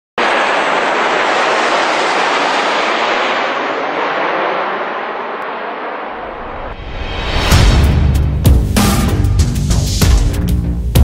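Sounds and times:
jet airliner passing overhead: 0.2 - 7.6.

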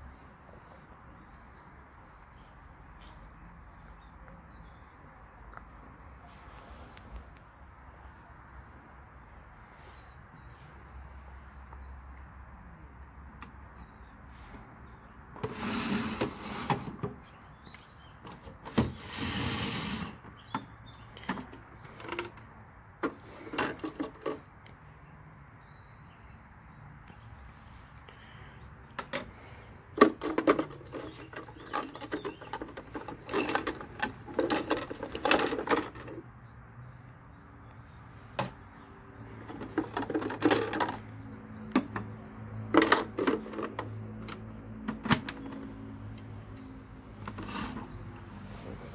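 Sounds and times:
plastic toy parts clattering: 21.2 - 22.4, 23.0 - 24.4, 30.0 - 36.2, 39.4 - 42.0, 42.7 - 45.6.

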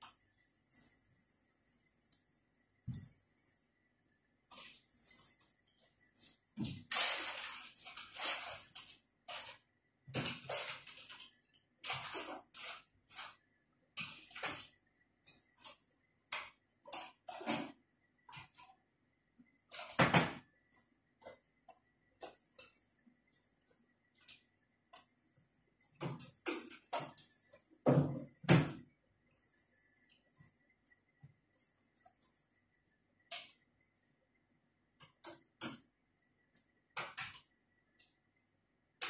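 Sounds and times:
rustling and clattering objects: 4.4 - 18.8.

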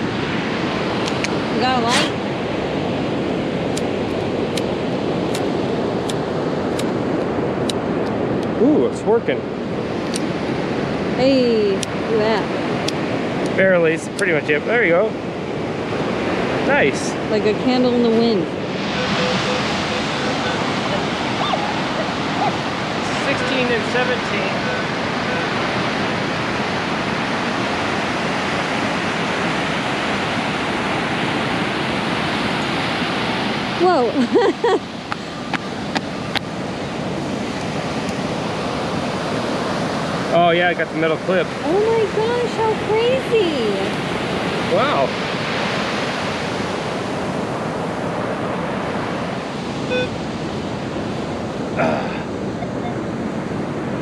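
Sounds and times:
ocean surf breaking: 0.0 - 54.0
metal detector beep: 49.9 - 50.2.

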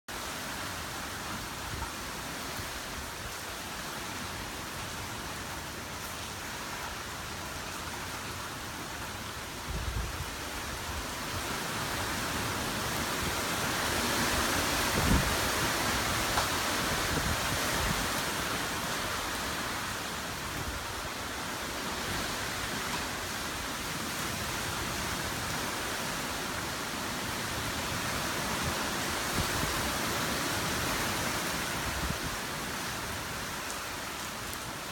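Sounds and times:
heavy rain falling: 0.1 - 34.9
wind gusting through trees: 0.1 - 34.9
wind rumbling on microphone: 9.6 - 11.6, 13.0 - 19.3.

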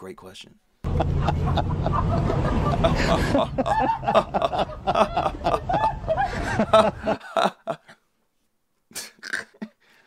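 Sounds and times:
street noise: 0.8 - 7.3
man chuckling and laughing: 0.9 - 8.0, 8.9 - 9.8.

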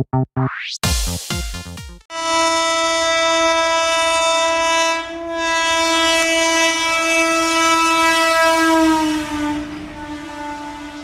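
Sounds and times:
train horn blast: 2.1 - 11.0.

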